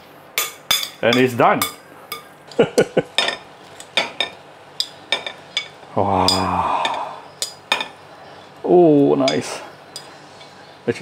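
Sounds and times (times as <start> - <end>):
low steady hum: 0.0 - 11.0
metal spoon clinking on glass bowl: 0.4 - 2.3, 3.1 - 8.0.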